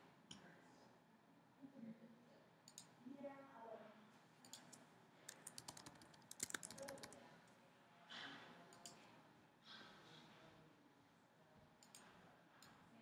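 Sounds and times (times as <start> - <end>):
keyboard keys clicking: 5.3 - 7.2.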